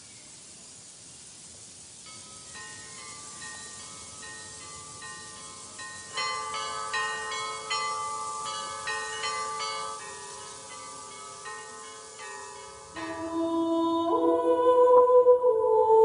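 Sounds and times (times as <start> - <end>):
bells ringing: 2.1 - 13.9.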